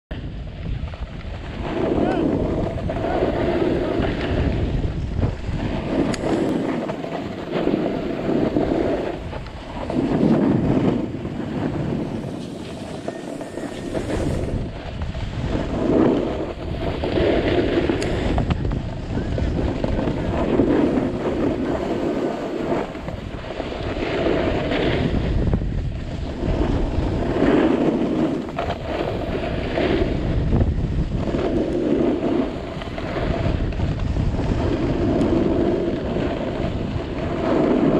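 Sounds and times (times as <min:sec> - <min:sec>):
wind buffeting microphone: 0:00.1 - 0:37.9
skis scraping packed snow: 0:00.2 - 0:37.9.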